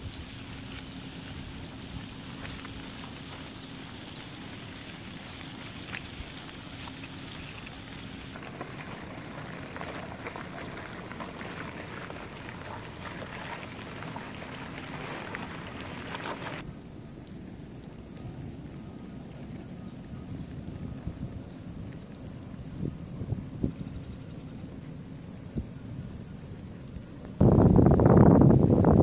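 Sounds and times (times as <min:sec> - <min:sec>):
crabs' legs clicking and tapping: 0:00.1 - 0:16.6.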